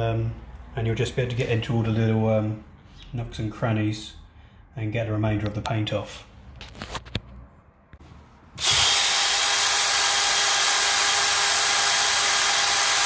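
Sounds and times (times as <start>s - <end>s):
drill wire brush scrubbing metal: 8.6s - 13.0s.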